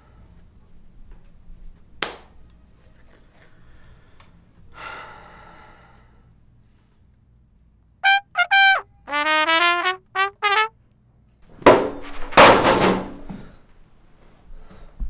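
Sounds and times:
trumpet playing: 8.0s - 10.7s.

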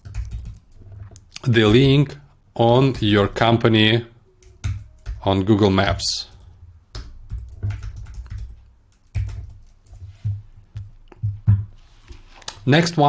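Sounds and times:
computer keyboard typing: 0.0s - 2.0s, 2.7s - 3.6s, 4.4s - 11.4s.

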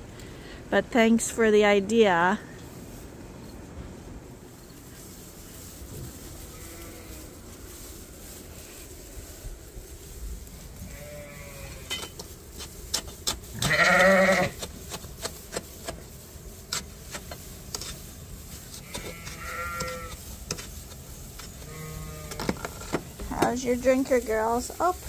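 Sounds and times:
sheep bleating: 6.5s - 7.2s, 10.9s - 11.9s, 13.6s - 14.6s, 18.8s - 20.1s, 21.7s - 22.4s.

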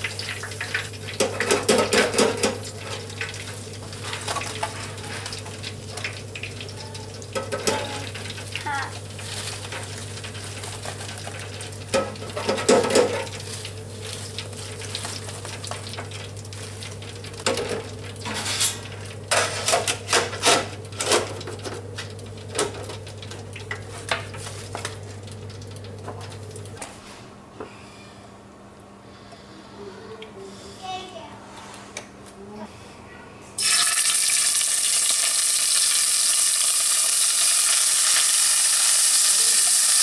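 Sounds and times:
fryer basket and lid clattering: 0.0s - 26.5s
hot oil sizzling: 0.0s - 26.8s, 33.6s - 40.0s.

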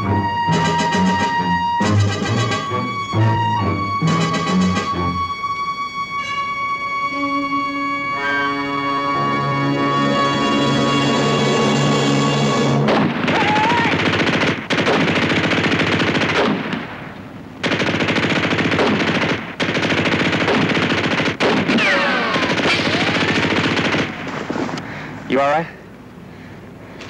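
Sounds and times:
held music chord: 0.0s - 12.9s
machine-gun fire: 12.8s - 24.8s
bullet ricochets whining: 21.4s - 23.4s.

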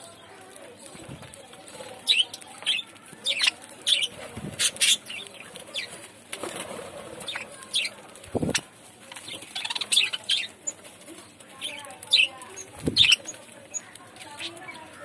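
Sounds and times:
budgerigars chirping: 7.2s - 10.7s, 11.6s - 13.4s.

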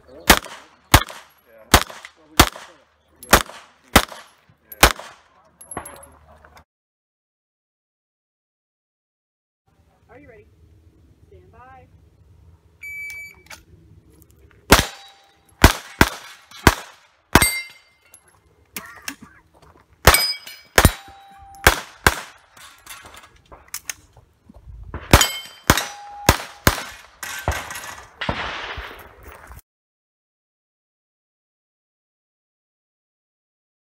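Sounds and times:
pistol shots: 0.2s - 5.3s, 14.7s - 17.8s, 20.0s - 22.5s, 25.0s - 29.1s
bullets clanging on steel plates: 14.7s - 15.6s, 17.4s - 18.3s, 20.1s - 23.9s, 25.1s - 28.1s.

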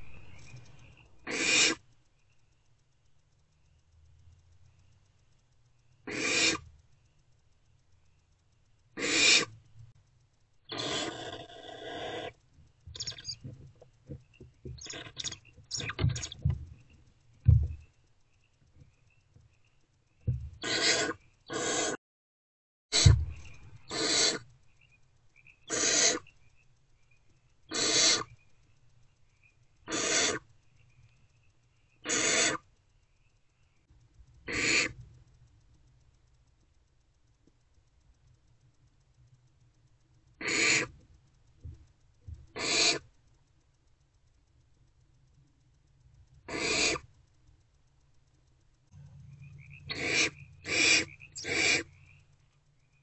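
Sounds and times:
owl chicks hissing calls: 0.0s - 1.9s, 6.0s - 6.7s, 9.0s - 9.6s, 10.6s - 13.5s, 14.8s - 16.5s, 20.6s - 22.0s, 22.9s - 24.6s, 25.4s - 26.4s, 27.6s - 28.4s, 29.8s - 31.0s, 31.9s - 32.7s, 34.4s - 35.0s, 40.4s - 41.0s, 42.5s - 43.1s, 46.5s - 47.1s, 49.5s - 52.2s.

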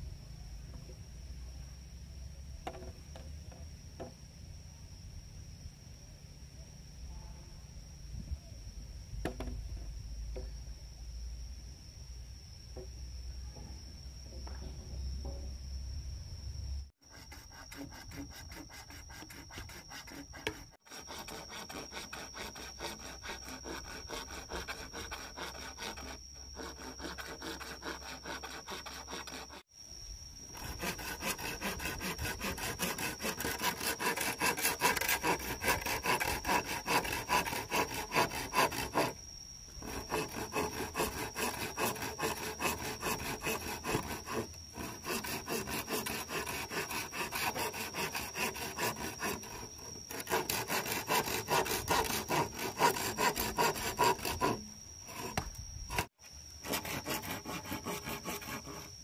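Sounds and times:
hand tool sawing wood: 17.1s - 29.7s, 30.6s - 39.2s, 39.8s - 59.0s.

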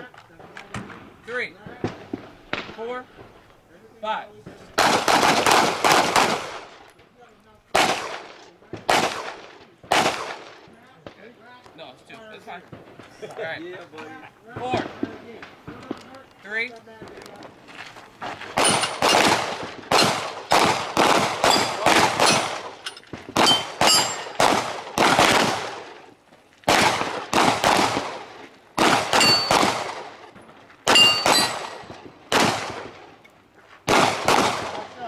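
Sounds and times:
bullets ringing on steel targets: 18.6s - 20.7s, 21.4s - 24.6s, 29.1s - 29.9s, 30.9s - 31.9s
handgun shots: 18.6s - 25.8s, 28.8s - 30.1s, 30.9s - 32.9s.

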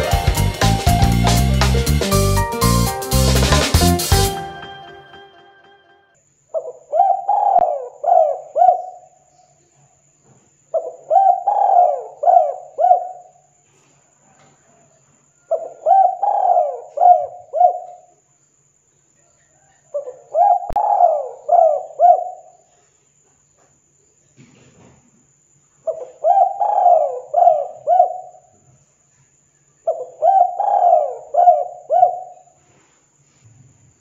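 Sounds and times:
dove cooing: 6.6s - 9.1s, 10.8s - 13.2s, 15.5s - 18.1s, 20.0s - 22.6s, 25.9s - 28.5s, 29.9s - 32.5s.

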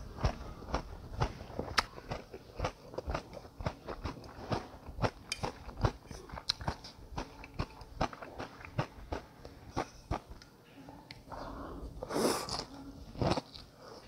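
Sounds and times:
person chewing food: 0.0s - 10.5s.

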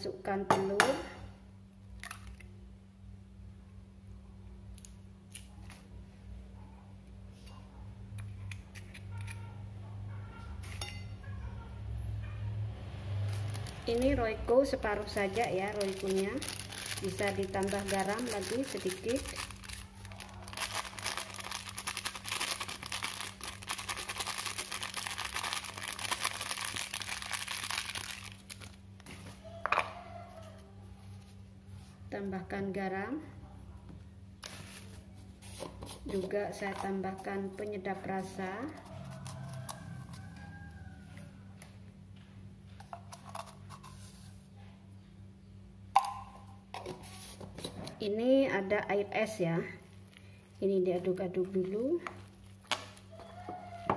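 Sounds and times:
spoon clinking against glass bowl: 10.7s - 11.2s
plastic sachet crinkling: 13.3s - 14.2s, 14.9s - 29.2s.

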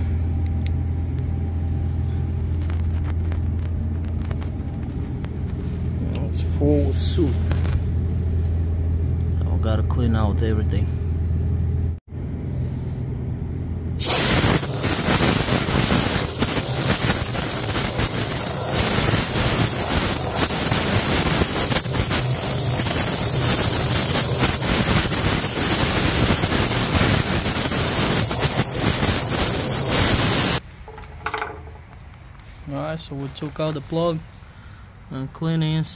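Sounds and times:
low hum: 0.0s - 32.6s
compressed air rushing through nozzle: 14.0s - 31.4s.

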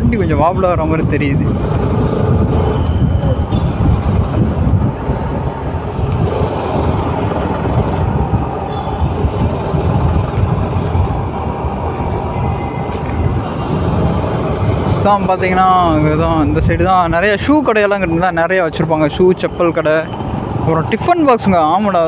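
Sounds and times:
wind buffeting microphone: 0.0s - 17.7s
motorcycle engine running: 0.4s - 16.5s.

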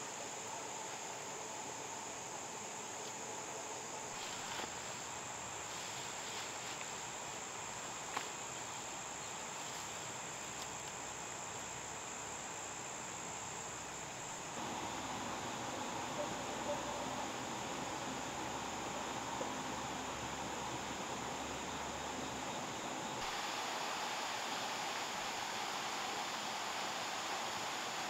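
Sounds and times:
crickets trilling: 0.0s - 28.0s
faint rustles: 4.1s - 7.1s
low steady hum: 14.5s - 28.0s.

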